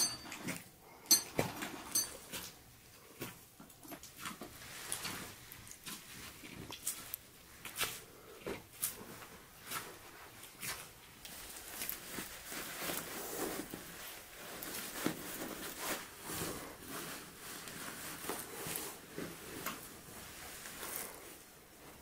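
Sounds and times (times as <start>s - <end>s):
cloth rustling and swishing: 8.8s - 22.0s.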